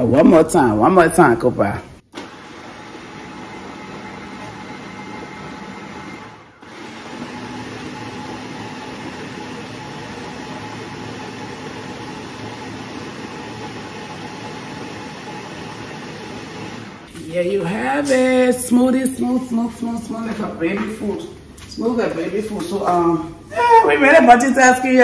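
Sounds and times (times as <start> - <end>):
electric blender running: 2.2 - 17.1.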